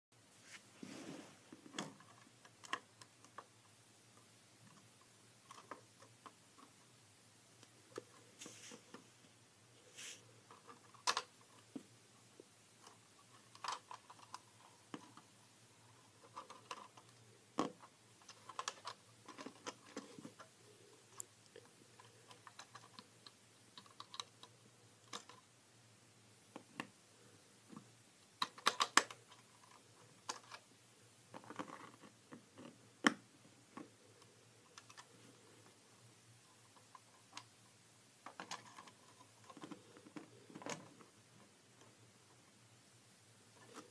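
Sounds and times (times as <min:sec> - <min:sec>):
plastic bricks clicking: 0:28.4 - 0:29.4.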